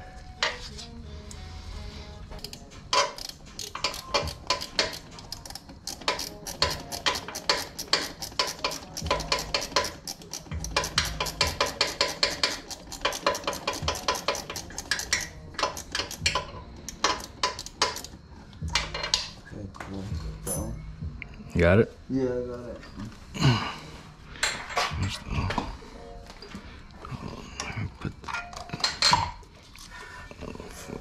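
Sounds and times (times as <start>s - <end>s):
hand ratchet clicking: 2.4s - 19.3s
metal knocking against metal: 6.1s - 19.4s.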